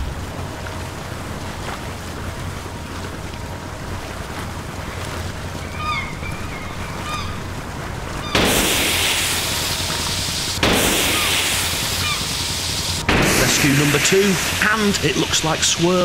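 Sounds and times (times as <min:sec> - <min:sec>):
choppy sea water washing: 0:00.0 - 0:16.0
wind: 0:00.0 - 0:16.0
short bird calls: 0:05.6 - 0:07.4, 0:11.0 - 0:13.0.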